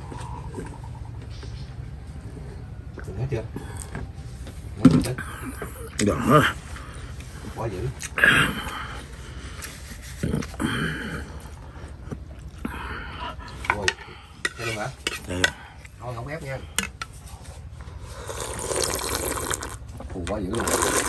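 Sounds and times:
spoon scraping ceramic bowl: 13.7 - 16.0.

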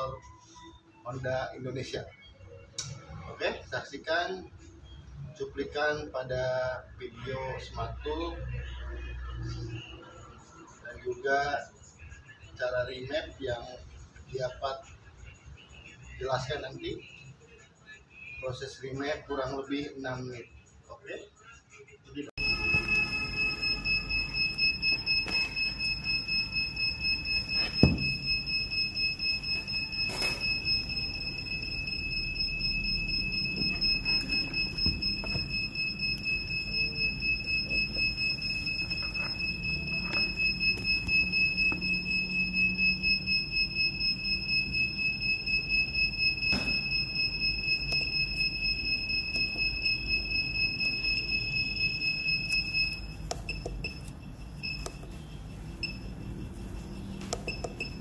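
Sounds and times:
pulsing high-pitched electronic tone: 22.4 - 53.1.

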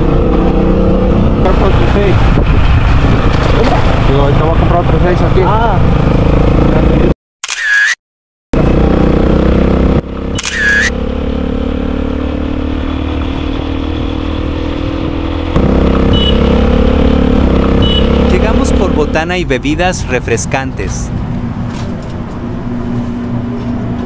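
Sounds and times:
vehicle engine running: 15.5 - 19.3.

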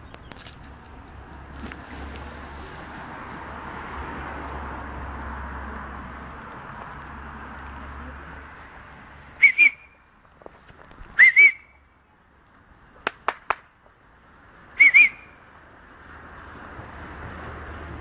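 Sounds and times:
whistle short pips: 9.4 - 10.0, 11.2 - 11.8, 14.8 - 15.4.

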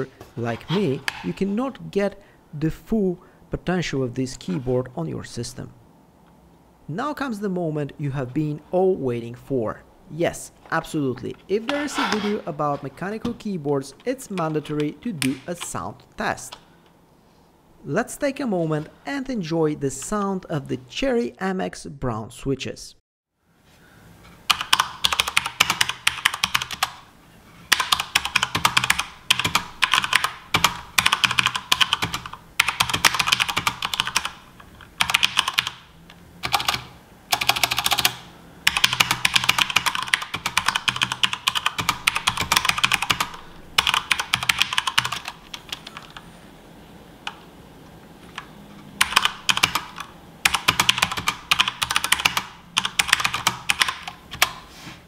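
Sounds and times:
fast typing on mechanical keyboard: 24.5 - 27.0, 27.7 - 35.8, 36.4 - 46.2, 49.0 - 54.6.

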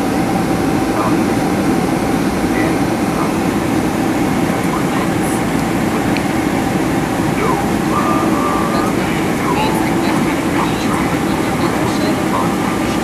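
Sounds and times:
jet engines: 0.0 - 13.0.

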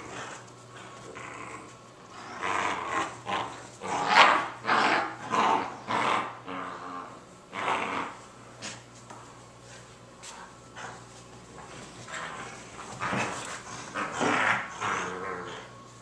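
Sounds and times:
puppies growling in play: 0.0 - 9.0, 9.8 - 15.9.

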